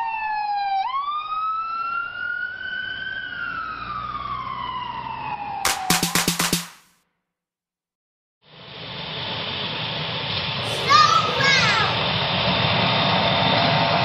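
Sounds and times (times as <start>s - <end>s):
ambulance siren wailing: 0.0s - 6.0s.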